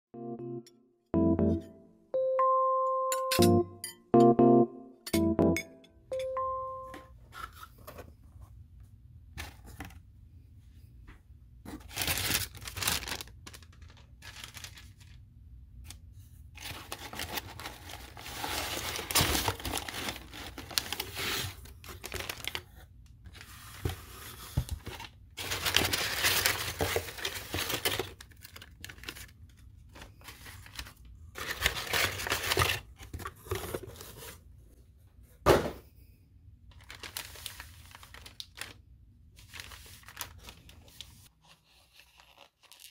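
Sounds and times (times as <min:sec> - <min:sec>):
paper rustling and tearing: 0:11.7 - 0:15.2, 0:16.6 - 0:22.7, 0:24.8 - 0:29.3, 0:29.9 - 0:34.2, 0:36.8 - 0:38.8, 0:39.4 - 0:42.9.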